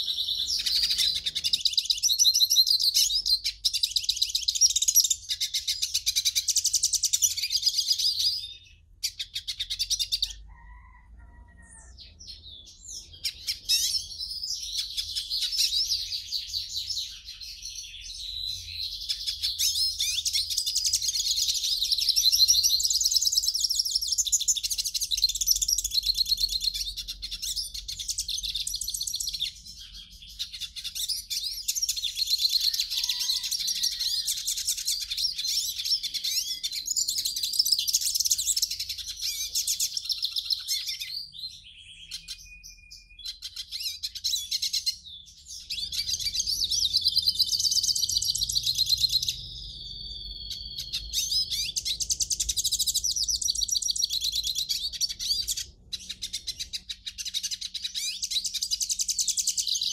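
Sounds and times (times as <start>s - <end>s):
finch singing twittering song: 0.0s - 11.0s, 11.6s - 59.9s.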